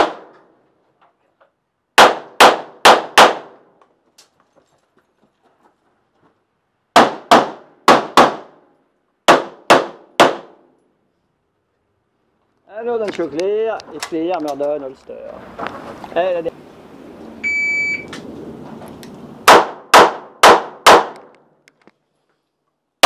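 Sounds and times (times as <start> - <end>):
pistol shots: 0.0 - 0.4, 2.0 - 3.6, 6.9 - 8.6, 9.3 - 10.7, 19.4 - 21.3.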